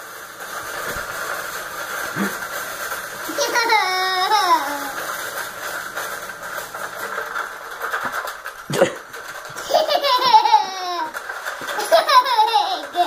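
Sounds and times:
washing machine rattling: 0.0 - 13.0
toddler laughing: 3.3 - 5.0, 9.6 - 13.0.

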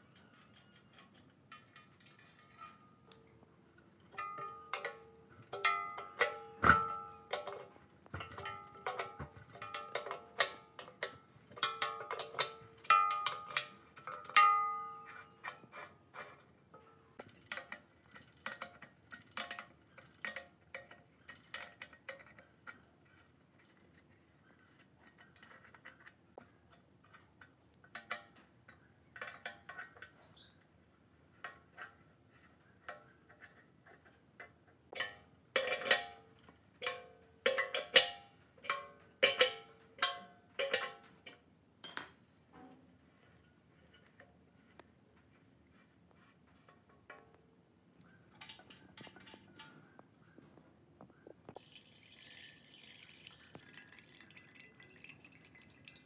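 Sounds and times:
wrench tapping iron pipe fittings: 4.0 - 22.9, 25.0 - 30.6, 31.4 - 44.8.

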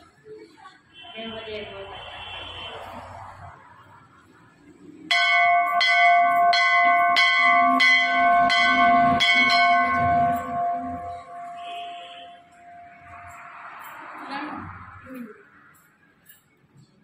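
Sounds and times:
brass bell clanging: 5.1 - 14.0.

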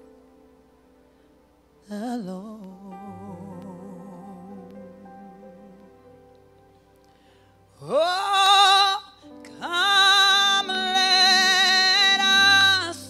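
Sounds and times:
soft keyboard chords: 0.0 - 13.0
woman singing into a microphone: 1.8 - 5.9, 7.8 - 13.0.

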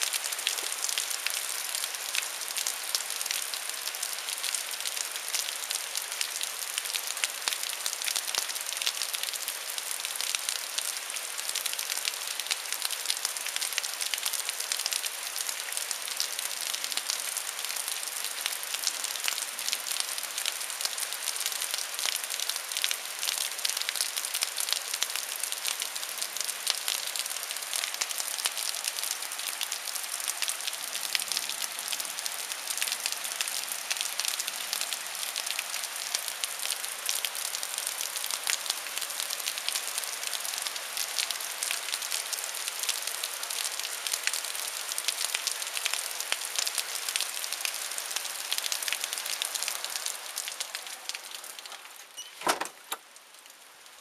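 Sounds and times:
heavy rain hiss: 0.0 - 53.9.

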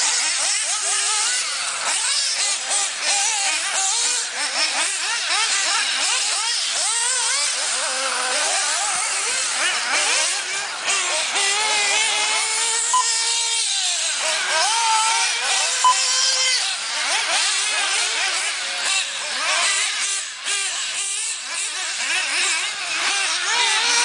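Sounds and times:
rc buggy engines whining: 0.0 - 24.0
short beeps: 12.9 - 13.2, 15.8 - 16.1.

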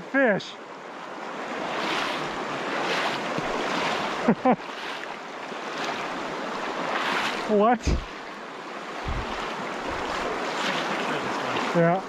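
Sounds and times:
stream rushing over rocks: 0.6 - 12.0.

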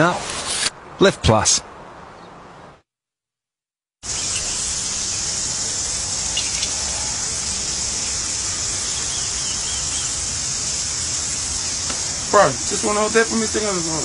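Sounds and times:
meat sizzling on a grill: 4.0 - 14.0.

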